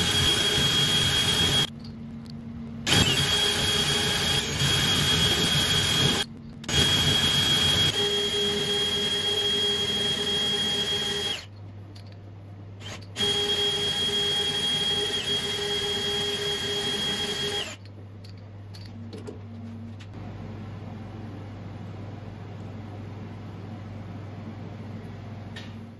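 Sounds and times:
drill whining into metal: 0:00.0 - 0:01.7, 0:02.9 - 0:11.5, 0:12.8 - 0:17.9
low steady hum: 0:00.2 - 0:08.4, 0:17.6 - 0:25.9.

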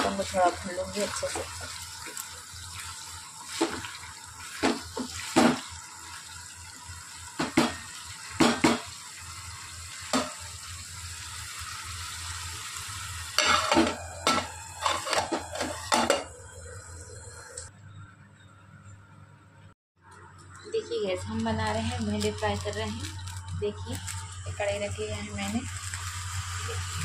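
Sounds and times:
steady hiss from pan: 0:00.0 - 0:16.1, 0:21.8 - 0:27.0
metal spoon scraping a pan: 0:13.4 - 0:16.3.

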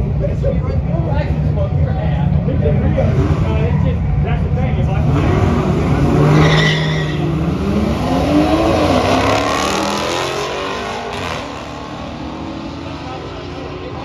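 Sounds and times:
car engines revving hard: 0:00.0 - 0:14.0
tyre squeal: 0:06.3 - 0:07.3.

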